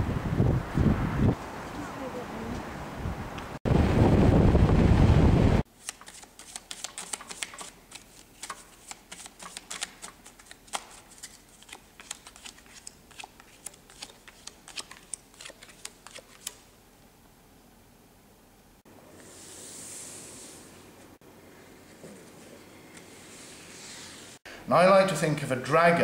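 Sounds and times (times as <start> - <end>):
playing cards shuffling: 5.8 - 16.7.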